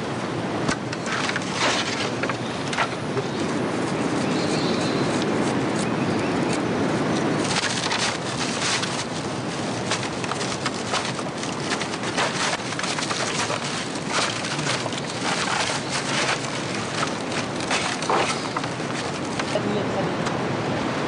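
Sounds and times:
bamboo poles crackling and clicking: 0.6s - 19.6s
rushing water: 6.6s - 21.0s.

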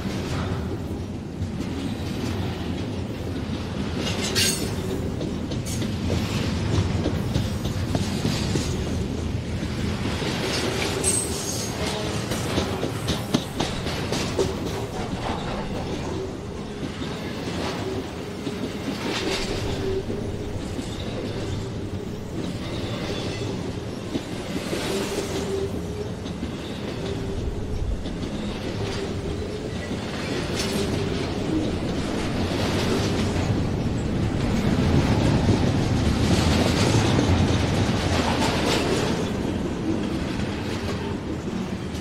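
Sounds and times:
train rumble: 0.0s - 42.0s
train wheels clacking over joints: 0.0s - 42.0s.

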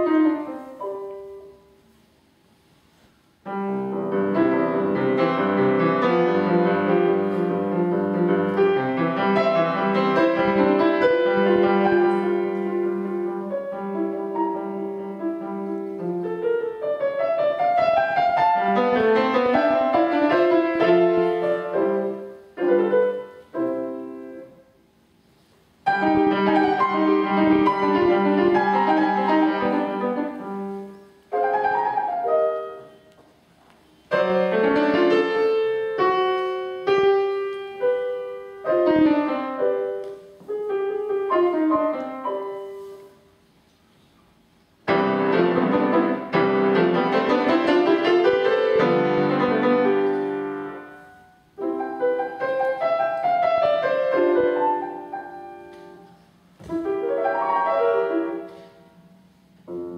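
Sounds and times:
solo classical piano piece: 0.0s - 59.9s.

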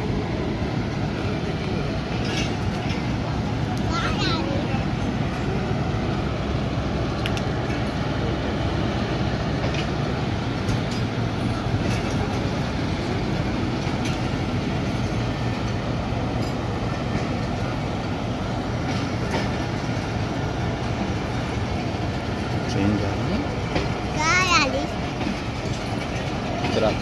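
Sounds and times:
train wheels rumbling and rattling: 0.0s - 27.0s.

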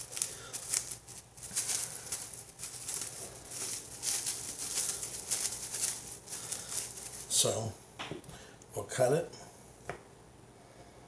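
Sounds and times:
plastic wrap crinkling: 0.0s - 7.7s.

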